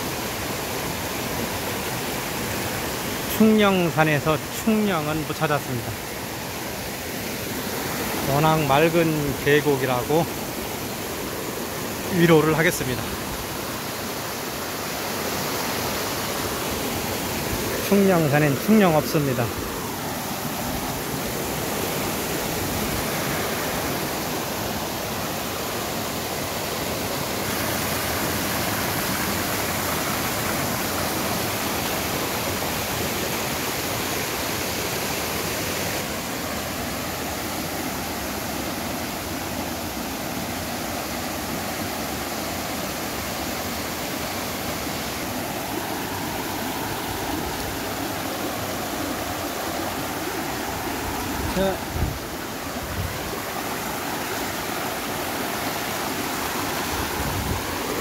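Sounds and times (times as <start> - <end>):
stream rushing over rocks: 0.0 - 58.0.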